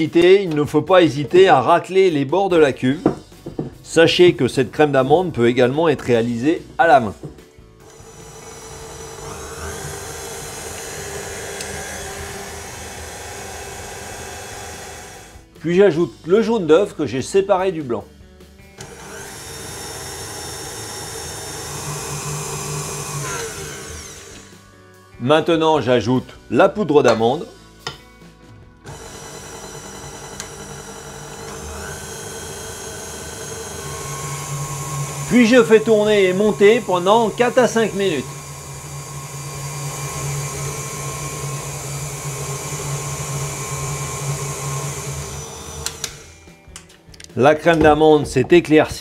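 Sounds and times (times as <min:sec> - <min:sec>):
stand mixer motor whine: 0:07.8 - 0:15.5, 0:18.8 - 0:24.6, 0:28.8 - 0:46.4.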